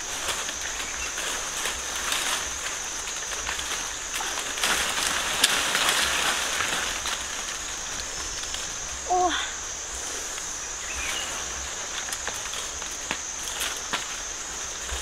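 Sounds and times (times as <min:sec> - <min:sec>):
leaves and branches rustling: 0:00.0 - 0:15.0
twigs snapping: 0:01.7 - 0:08.7.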